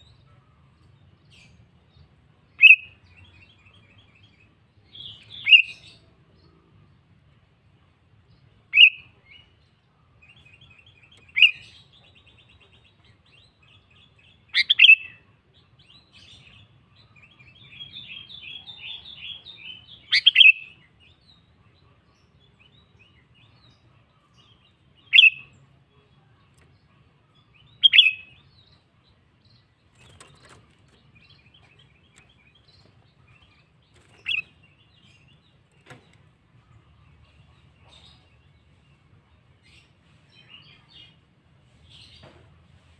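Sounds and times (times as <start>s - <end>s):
bird rapid twittering chatter: 29.9s - 38.2s.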